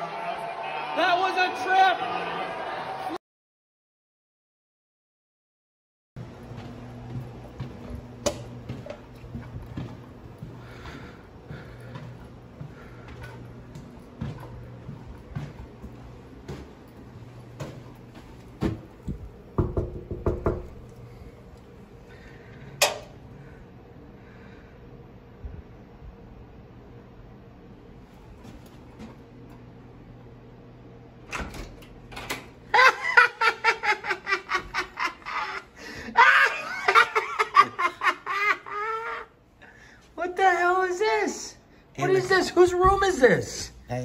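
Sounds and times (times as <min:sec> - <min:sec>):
people laughing: 0:01.7 - 0:03.2, 0:32.7 - 0:39.3
fist knocking on door: 0:19.6 - 0:20.8.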